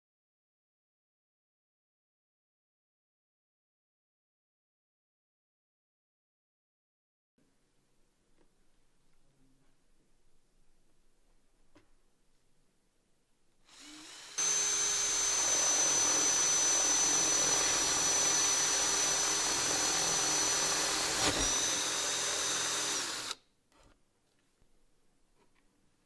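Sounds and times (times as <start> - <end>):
cordless drill whining: 13.7 - 23.4.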